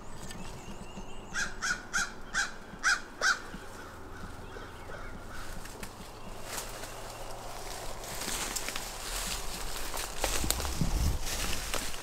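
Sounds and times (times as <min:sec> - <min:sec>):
crow cawing: 0:01.4 - 0:05.6.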